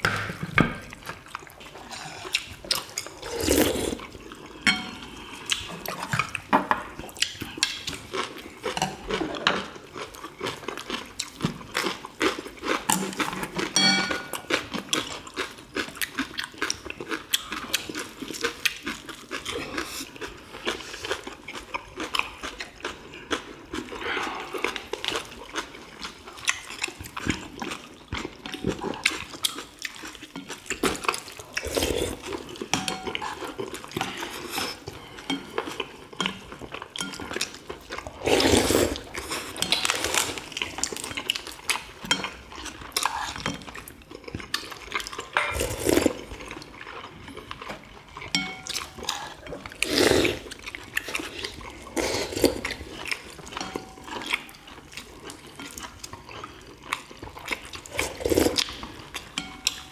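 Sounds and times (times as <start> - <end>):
people chewing: 0.0 - 59.9
utensils clicking on ceramic bowls: 48.3 - 48.8.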